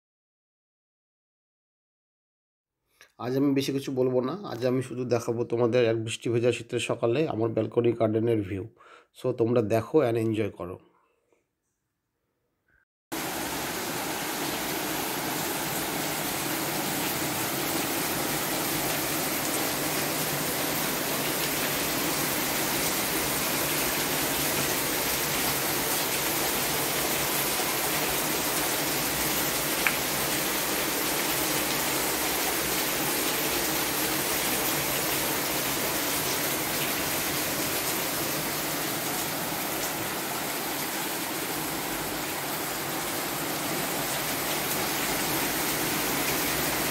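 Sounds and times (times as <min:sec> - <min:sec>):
steady rain: 0:13.2 - 0:46.9.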